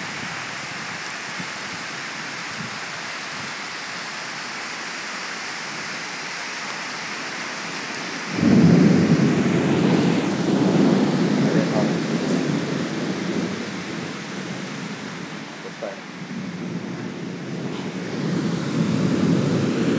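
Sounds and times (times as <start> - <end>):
heavy rain and pouring water: 0.0 - 19.9.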